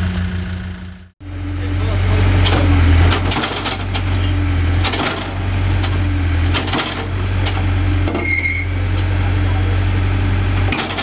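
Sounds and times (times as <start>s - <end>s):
diesel engine running: 0.0s - 11.0s
sharp clicks and knocks: 2.4s - 8.3s, 10.6s - 11.0s.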